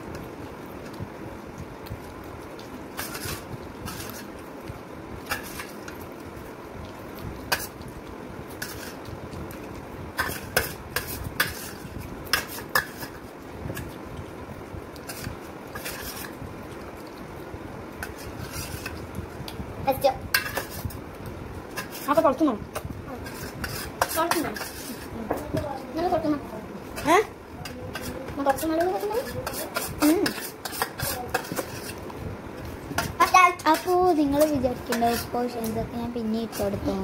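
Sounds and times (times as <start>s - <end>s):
spoons clinking on metal plates: 20.4s - 20.8s, 27.6s - 31.9s.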